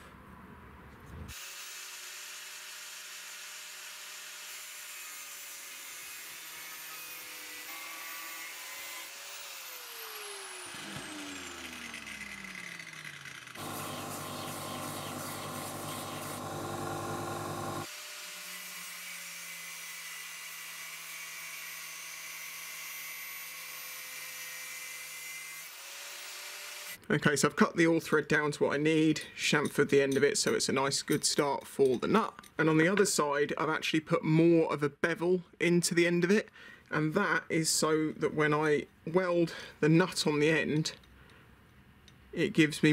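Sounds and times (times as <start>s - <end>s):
angle grinder grinding steel: 1.3s - 27.0s.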